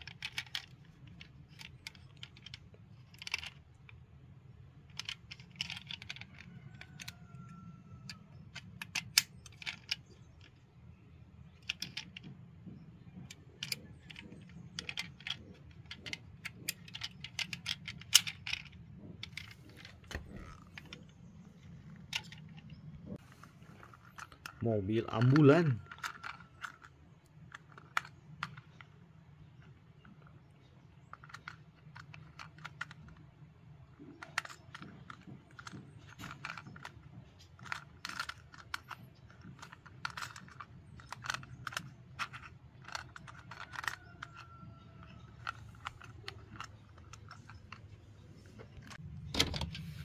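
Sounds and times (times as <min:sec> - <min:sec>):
toy car clicks and taps: 0:00.0 - 0:03.9, 0:04.9 - 0:10.6, 0:11.5 - 0:21.1, 0:21.9 - 0:33.3, 0:33.9 - 0:49.0.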